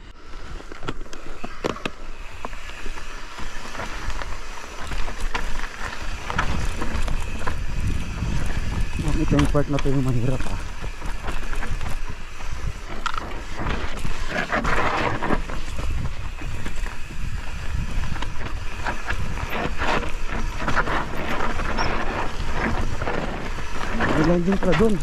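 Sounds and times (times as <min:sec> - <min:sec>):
wind rumbling on microphone: 0:00.0 - 0:25.0
bike rattling over bumps: 0:00.2 - 0:25.0
tyres crunching over gravel: 0:00.5 - 0:25.0.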